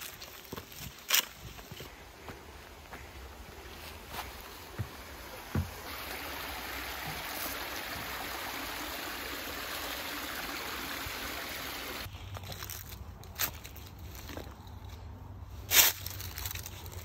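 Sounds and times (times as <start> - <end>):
footstep on wooden footbridge: 1.4 - 6.0
stream trickling over rocks: 3.3 - 12.1.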